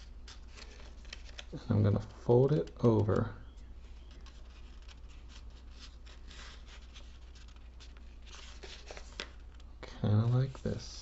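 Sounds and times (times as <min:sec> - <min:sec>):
paper rustling and crinkling: 0:00.0 - 0:11.0.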